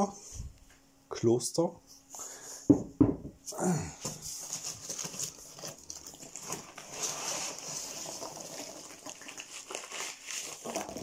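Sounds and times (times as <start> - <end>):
foam packing peanuts rustling: 4.0 - 11.0.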